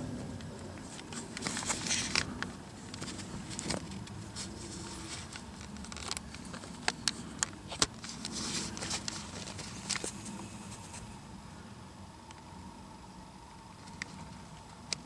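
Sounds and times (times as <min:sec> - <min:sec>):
rustling: 0:00.4 - 0:11.2.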